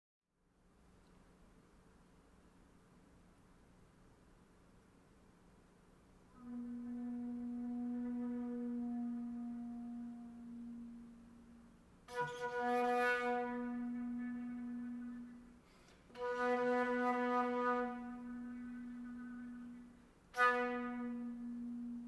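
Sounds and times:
flute holding low notes: 6.3s - 22.0s.

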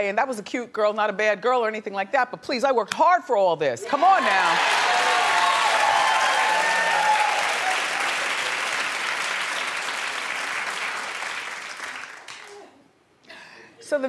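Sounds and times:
audience applauding and cheering: 4.3s - 12.5s.

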